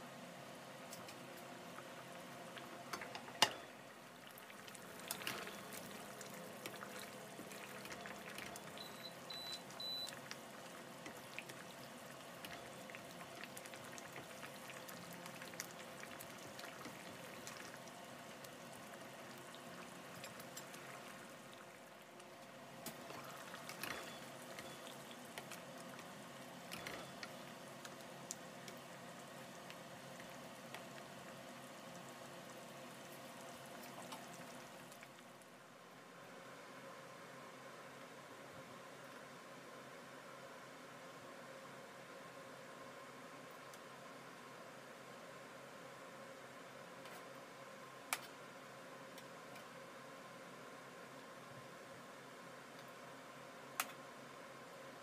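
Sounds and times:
sauce bubbling in a pan: 1.4 - 35.8.

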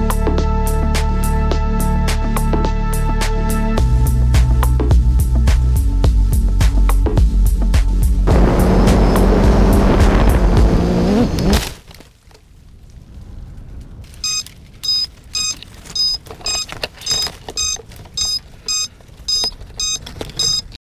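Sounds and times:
quadcopter motors running: 8.3 - 11.6
quadcopter crashing into bush: 8.3 - 11.9
short even beeps: 14.2 - 20.8.

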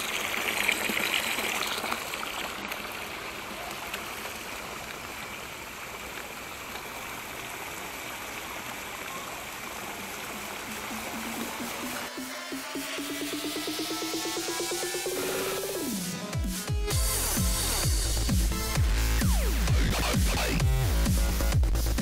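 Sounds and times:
splashing pond water: 0.0 - 14.4.

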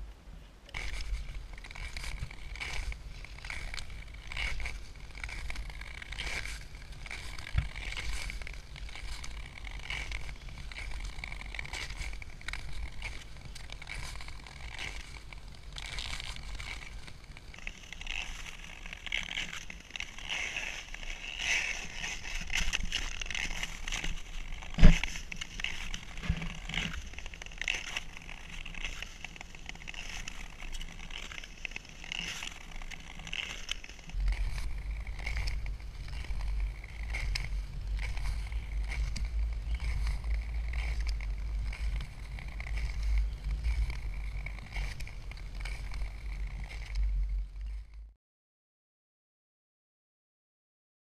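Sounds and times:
skate blades scraping over ice: 0.7 - 48.1
wind rumbling on microphone: 33.6 - 48.1.

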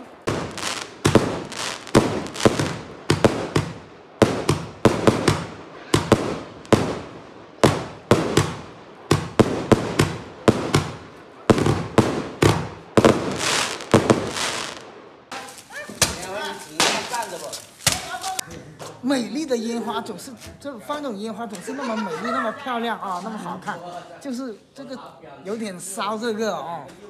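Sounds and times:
fireworks bursting: 0.0 - 18.4.

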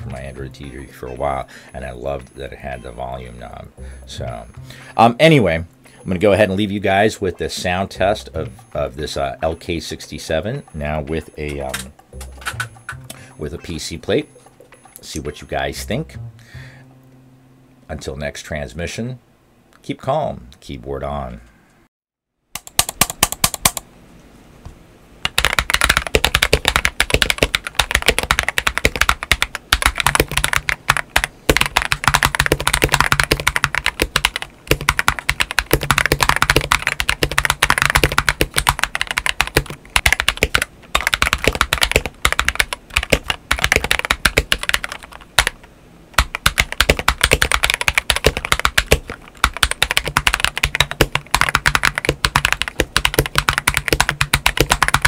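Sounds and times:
fast mechanical keyboard typing: 22.6 - 23.8, 25.2 - 45.6, 46.2 - 55.0.

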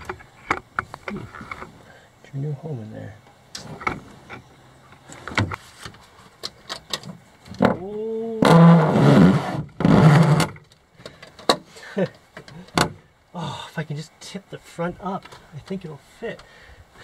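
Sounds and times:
plastic case squeaking: 8.4 - 10.7
battery case grinding scrapes: 8.4 - 10.8.

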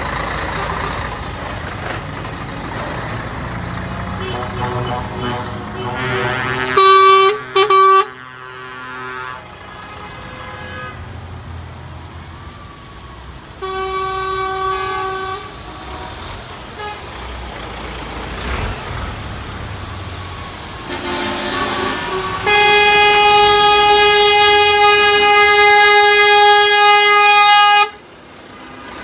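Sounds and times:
lorries rumbling past: 0.0 - 29.0
truck horn blasts: 4.1 - 11.1, 13.6 - 17.2, 20.8 - 28.0.

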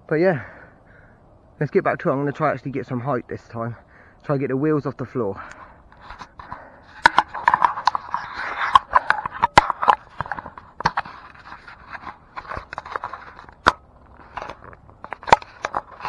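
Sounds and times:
camera scraping against bark: 5.4 - 16.0
sharp clicks and knocks: 5.9 - 16.0.

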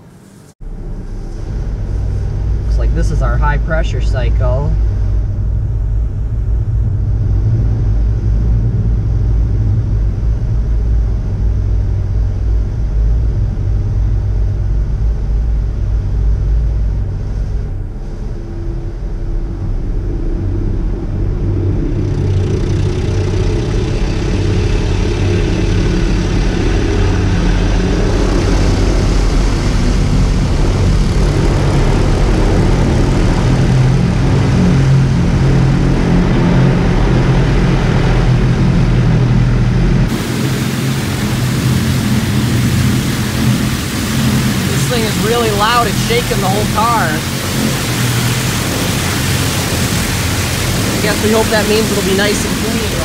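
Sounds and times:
car wash jets rumbling: 0.0 - 53.0
water spray hissing on glass: 40.1 - 53.0.

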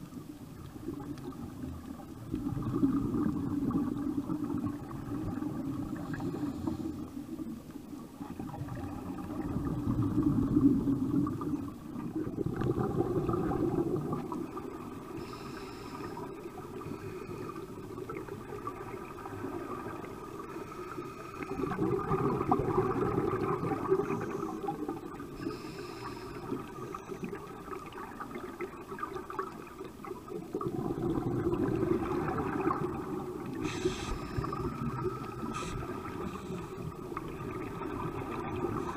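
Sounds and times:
exhaled bubbles gurgling underwater: 0.0 - 38.9
faint steady drone: 3.2 - 8.6, 13.8 - 21.8, 22.7 - 30.6, 31.4 - 38.9.

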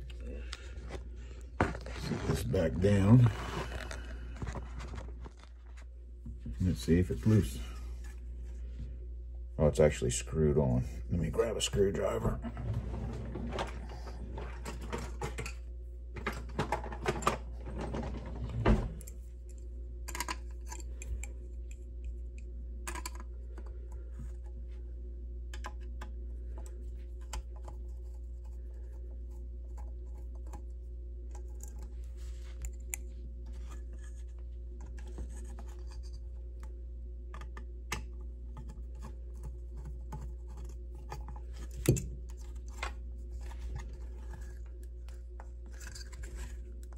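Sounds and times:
handling noise and rustling: 0.0 - 8.8, 26.4 - 46.9
steady low hum: 0.0 - 46.9.

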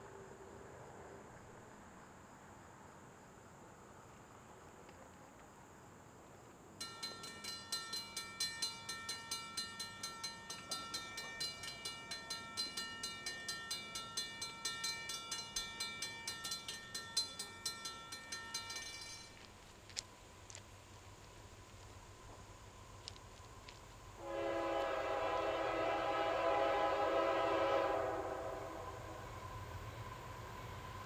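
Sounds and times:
bell ringing rapidly: 6.8 - 19.4.

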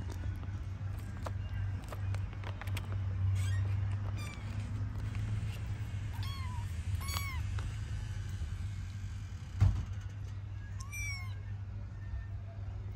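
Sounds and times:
kitten meowing: 6.1 - 7.7, 10.8 - 11.4
thump: 9.6 - 10.0.

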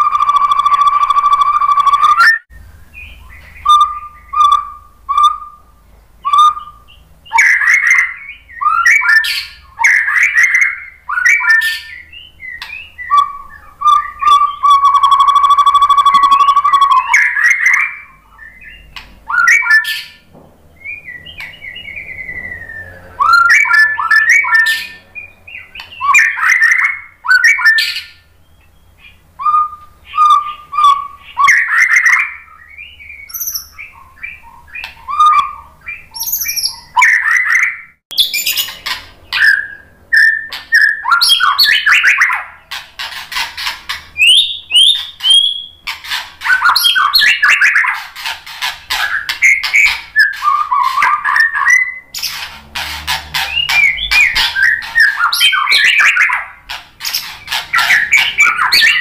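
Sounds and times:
bird singing whistles and trills: 0.0 - 52.5, 53.4 - 59.0
harsh rapid bird chattering: 30.0 - 59.0.

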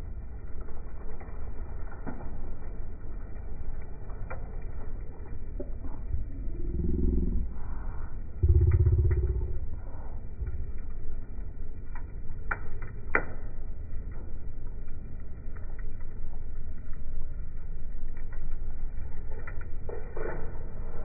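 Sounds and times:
fire popping and crackling: 0.0 - 21.0
low rumble of flames: 0.0 - 21.0.

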